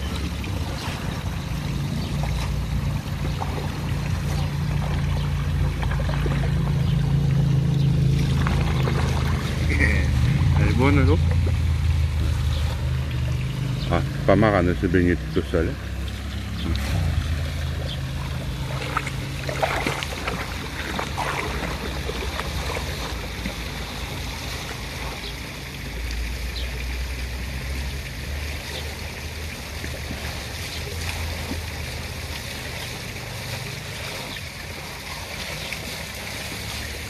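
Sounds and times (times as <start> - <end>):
dog splashing through water: 0.0 - 14.3, 15.2 - 37.0
low rumble: 0.1 - 23.4.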